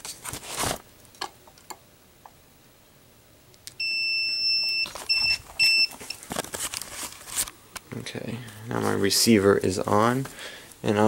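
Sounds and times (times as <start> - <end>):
high electronic beep: 3.8 - 5.9
handling rustles and clicks: 4.8 - 7.9.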